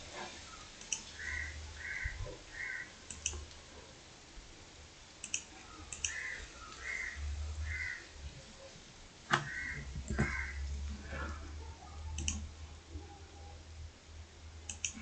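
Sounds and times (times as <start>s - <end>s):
computer mouse clicking: 0.8s - 1.1s, 3.1s - 3.6s, 5.2s - 6.3s, 12.1s - 12.5s, 14.7s - 15.0s.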